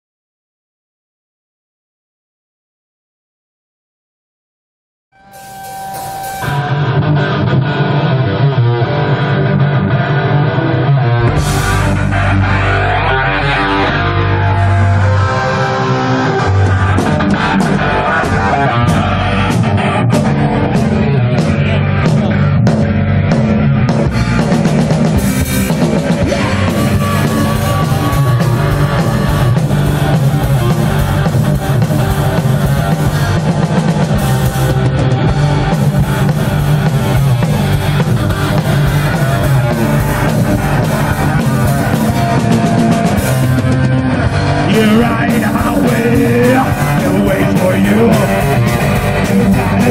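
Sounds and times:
heavy metal band playing: 0:05.2 - 0:49.9
drum hits: 0:24.1 - 0:43.8.

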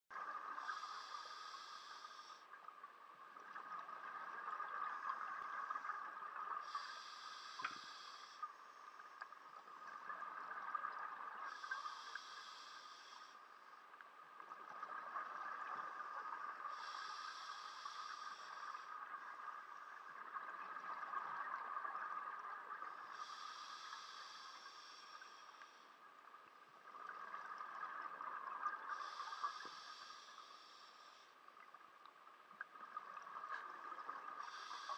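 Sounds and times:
diver breathing through regulator: 0:00.6 - 0:02.5, 0:06.6 - 0:08.7, 0:11.5 - 0:13.6, 0:16.6 - 0:19.0, 0:23.0 - 0:26.0, 0:28.9 - 0:31.4, 0:34.4 - 0:34.9.

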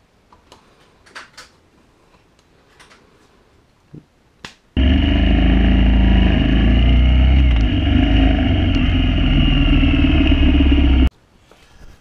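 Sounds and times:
motorcycle engine running: 0:04.8 - 0:11.1.

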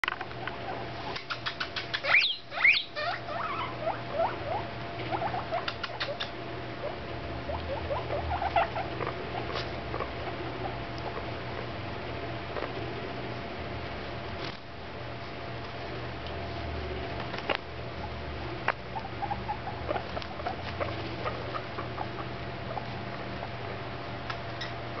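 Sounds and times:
guinea pigs squeaking: 0:00.1 - 0:11.8, 0:18.0 - 0:25.0.

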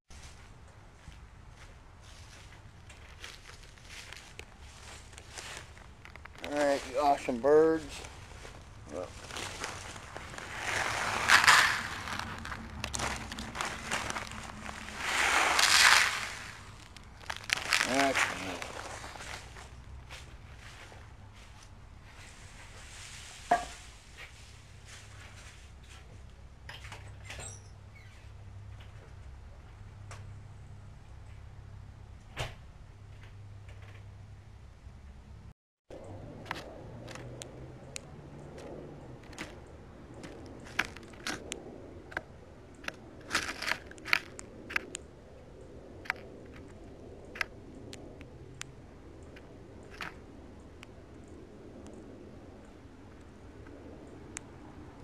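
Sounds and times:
bird pecking seed: 0:09.9 - 0:19.4.

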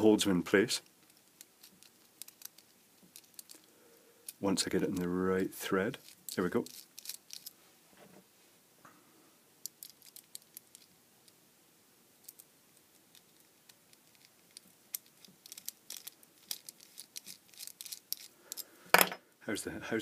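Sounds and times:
small parts clicking: 0:00.8 - 0:05.1, 0:06.0 - 0:07.6, 0:09.6 - 0:11.4, 0:12.2 - 0:19.1.

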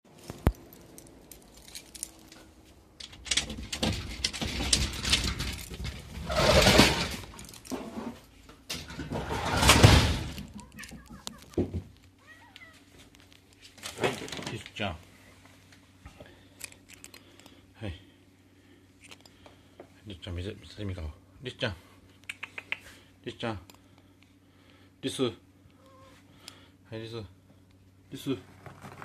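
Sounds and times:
keys jingling: 0:00.2 - 0:06.1, 0:07.2 - 0:07.8, 0:10.4 - 0:11.5, 0:16.5 - 0:17.5
sliding door scraping open: 0:04.4 - 0:08.2, 0:08.8 - 0:10.4
cat meowing faintly: 0:10.6 - 0:11.6, 0:12.2 - 0:13.0, 0:25.8 - 0:26.2.

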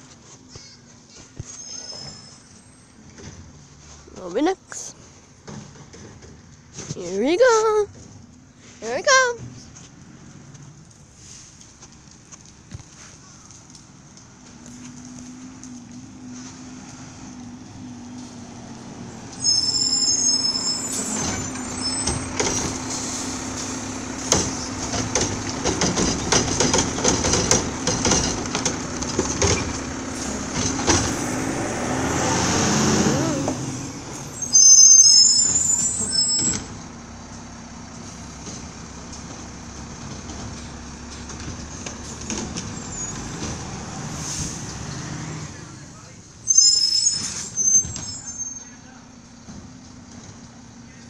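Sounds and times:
high-pitched brake squeals: 0:01.4 - 0:03.0, 0:19.3 - 0:22.3, 0:34.2 - 0:36.7, 0:42.8 - 0:43.3, 0:46.4 - 0:48.8
clanks and knocks: 0:05.4 - 0:07.0, 0:24.2 - 0:31.2
garbage truck engine running: 0:14.4 - 0:47.8.

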